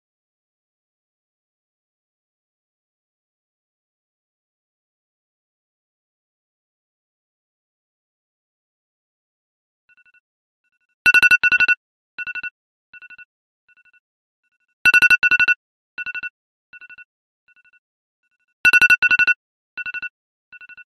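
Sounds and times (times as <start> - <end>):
phone alarm beeping: 18.7 - 20.8.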